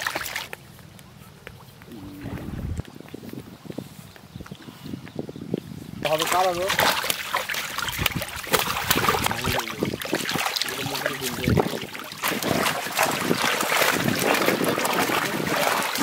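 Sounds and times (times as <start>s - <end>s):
fish thrashing in water: 0.0s - 0.5s, 6.0s - 16.0s
water dripping: 6.0s - 16.0s.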